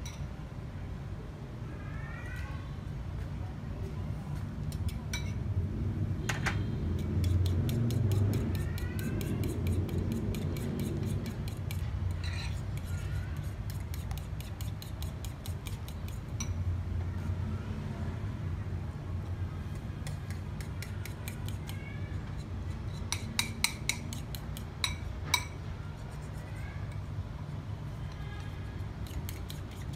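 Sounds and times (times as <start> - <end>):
metal spoon clicking against bowl: 23.1 - 25.5.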